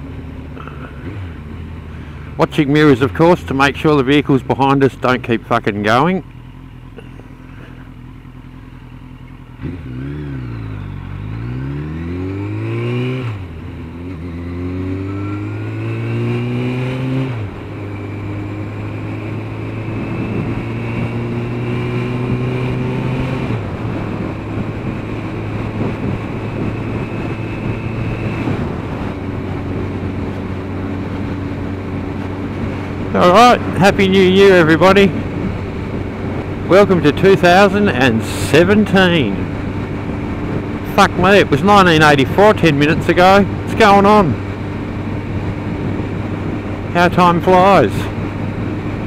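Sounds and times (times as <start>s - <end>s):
motorcycle engine accelerating: 0.0s - 49.0s
wind noise on microphone: 19.9s - 49.0s.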